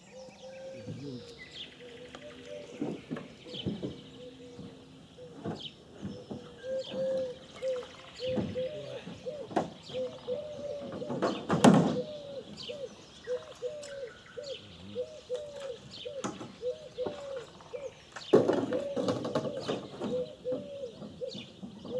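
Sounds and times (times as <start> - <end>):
bird calling: 0.0 - 21.9
knocks and thuds: 2.8 - 4.1, 8.3 - 9.9, 10.9 - 12.0, 18.3 - 20.1.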